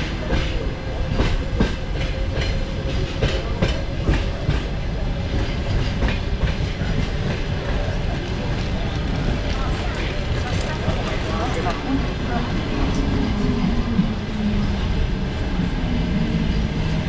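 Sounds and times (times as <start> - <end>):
train wheels clicking over rail joints: 0.0 - 11.8
low train rumble: 0.0 - 17.0.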